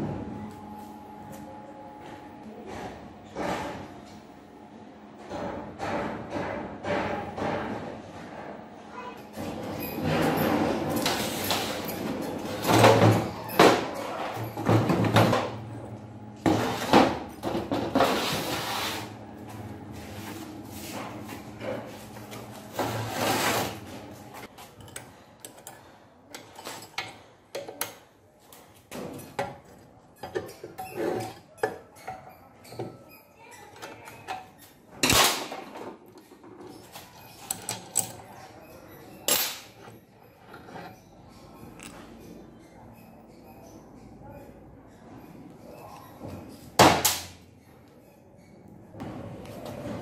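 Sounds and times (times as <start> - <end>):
metal tools clinking and scraping: 9.0 - 15.6, 20.8 - 44.1.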